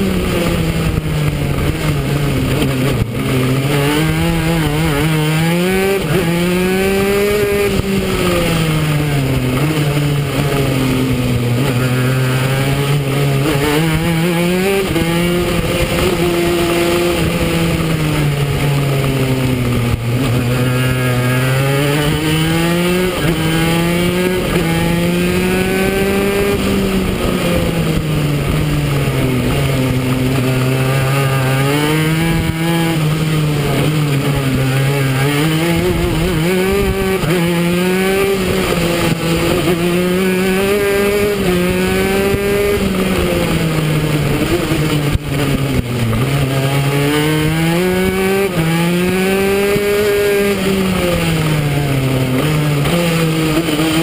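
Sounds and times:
go-kart engine revving: 0.0 - 54.0.

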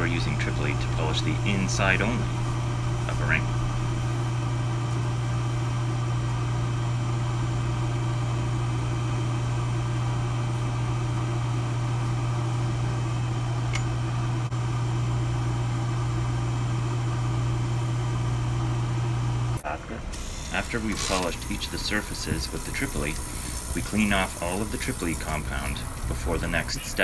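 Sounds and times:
polishing motor humming: 18.1 - 27.0.

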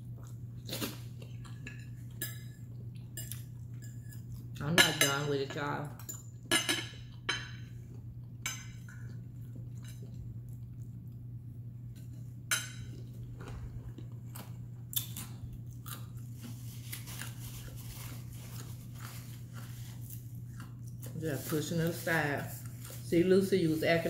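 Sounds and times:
paper napkin crinkling: 16.3 - 20.3.

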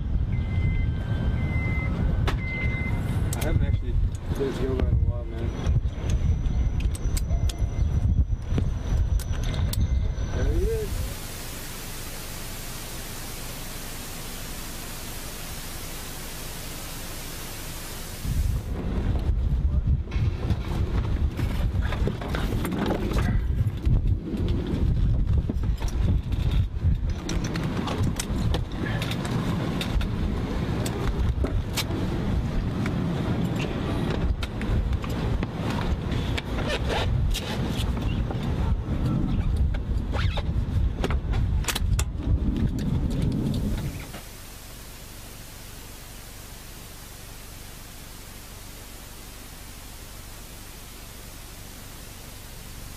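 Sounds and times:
steady static hiss: 10.6 - 18.8, 43.4 - 52.9.

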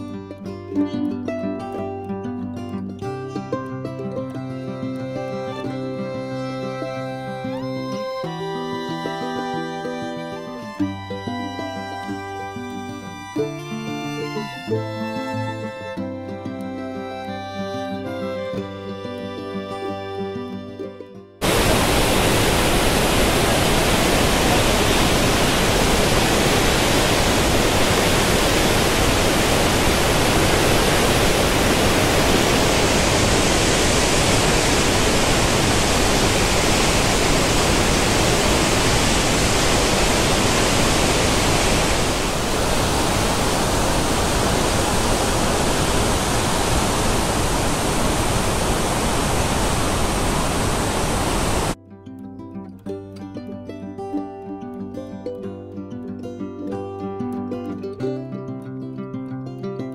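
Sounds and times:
waterfall rushing: 21.4 - 51.8.

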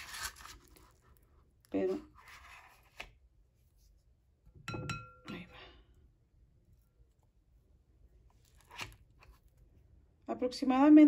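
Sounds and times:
glass bowl clinking and ringing: 4.7 - 5.5.

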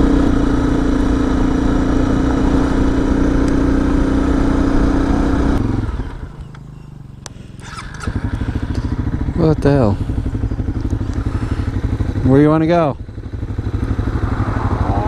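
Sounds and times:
motorcycle engine cruising: 0.0 - 15.0
gravel noise: 5.9 - 11.9
low rumble: 8.2 - 12.2, 13.0 - 15.0.

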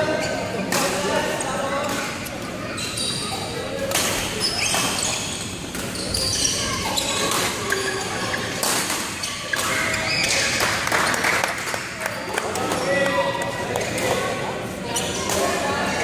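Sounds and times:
shoes squeaking on court floor: 1.9 - 10.6, 14.8 - 15.6.

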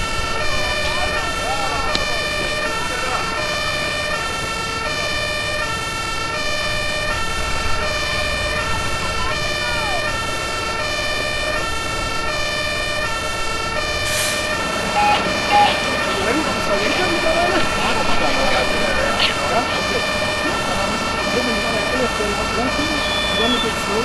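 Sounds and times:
two-tone fire engine siren: 0.0 - 24.0
steady high tone: 13.8 - 24.0.

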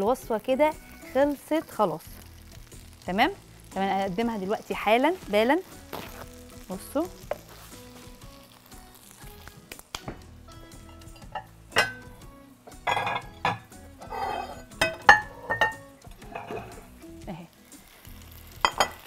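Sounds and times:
pasta sizzling in a frying pan: 0.0 - 19.0
quiet background music: 0.0 - 19.0
kitchenware clinking: 10.9 - 12.1, 12.7 - 16.9, 18.6 - 19.0.

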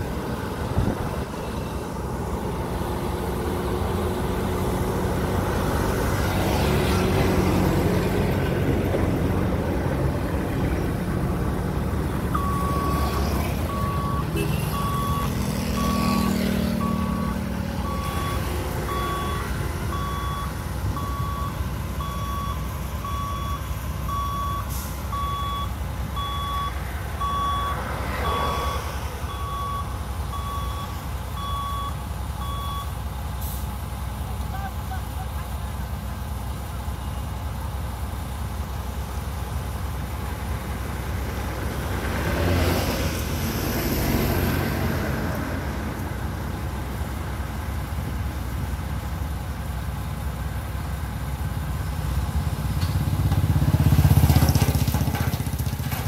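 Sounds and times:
diesel engines rumbling: 0.0 - 56.0
reversing alarm beeping: 12.3 - 33.0.

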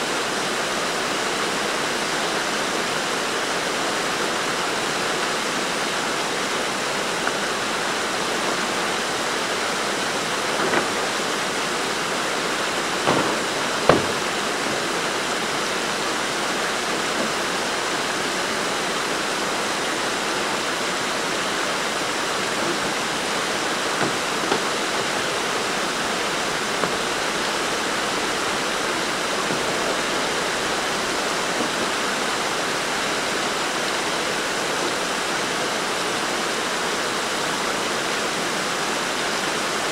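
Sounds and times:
river rushing over stones: 0.0 - 39.9
sharp knocks: 10.4 - 15.5, 23.7 - 25.1.

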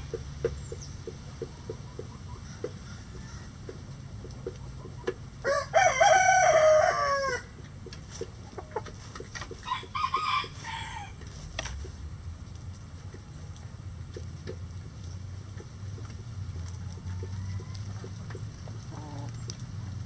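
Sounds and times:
hen clucks: 0.0 - 5.3, 7.6 - 10.6, 15.5 - 20.0
ticks of scratching and pecking: 0.0 - 5.4, 6.8 - 20.0
rooster crowing: 5.4 - 7.5, 9.6 - 11.2, 16.8 - 18.2.

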